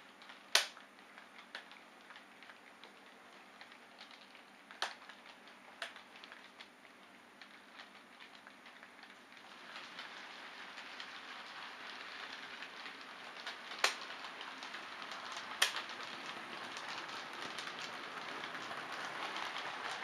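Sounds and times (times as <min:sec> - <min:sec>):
model train wheels rattling: 0:07.4 - 0:20.0.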